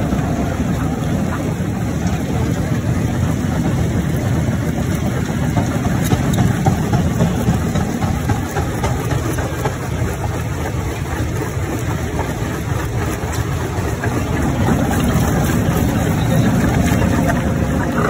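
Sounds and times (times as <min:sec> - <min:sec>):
jaw crusher rumbling: 0:04.1 - 0:18.0.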